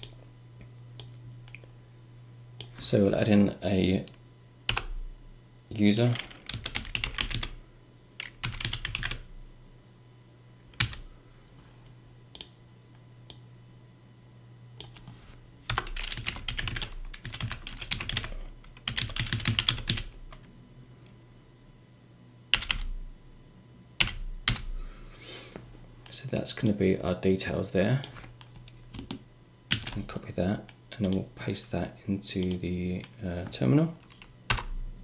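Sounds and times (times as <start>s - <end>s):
typing on computer keyboard: 6.2s - 7.5s, 8.2s - 9.2s, 15.7s - 20.1s, 28.3s - 30.0s.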